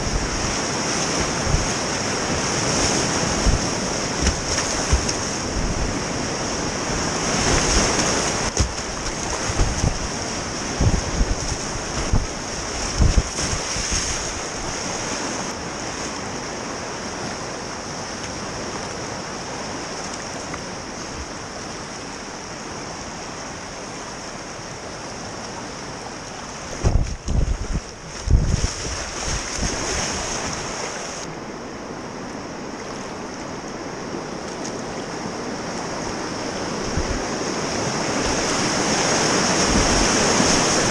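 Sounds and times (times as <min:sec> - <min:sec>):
whitewater roaring: 0:00.0 - 0:40.9
low thumps on microphone: 0:09.4 - 0:10.1, 0:10.8 - 0:12.3, 0:12.9 - 0:13.6, 0:26.8 - 0:28.7.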